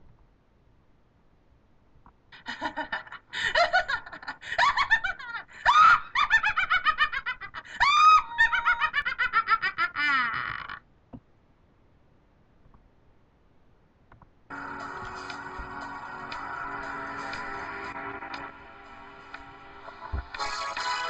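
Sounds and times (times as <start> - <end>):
high-pitched cackling laughter: 2.4 - 10.8.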